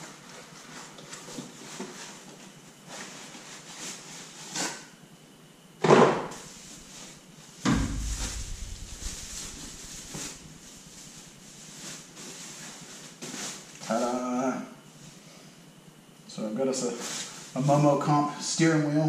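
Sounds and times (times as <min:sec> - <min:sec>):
loud knock: 0:07.6 - 0:10.5
deep heavy thump: 0:07.6 - 0:10.8.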